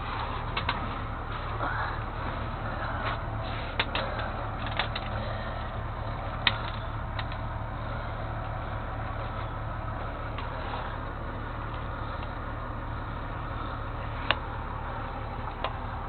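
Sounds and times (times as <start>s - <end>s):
vehicle engine running: 0.0s - 16.0s
sharp clicks and ticks: 3.0s - 7.6s.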